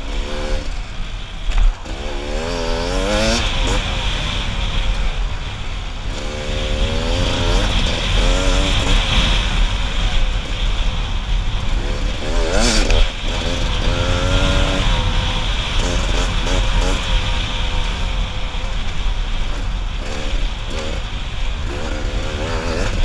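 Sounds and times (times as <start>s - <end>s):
dirt bike engine revving: 0.0s - 23.0s
wind hissing on microphone: 0.0s - 23.0s.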